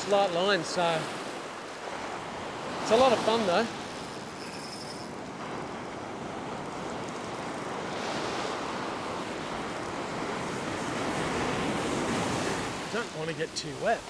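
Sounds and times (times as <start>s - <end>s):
ocean surf breaking: 0.0s - 14.0s.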